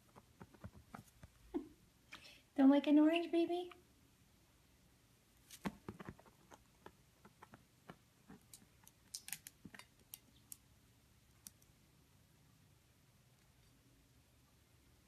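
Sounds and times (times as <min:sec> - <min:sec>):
bird claws and beak tapping plastic: 0:05.6 - 0:10.6.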